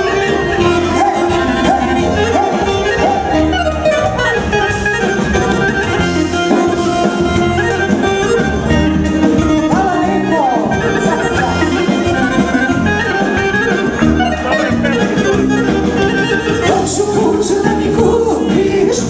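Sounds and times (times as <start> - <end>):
repeating bass beat: 0.0 - 6.0
accordion: 0.0 - 19.0
saxophone: 0.0 - 19.0.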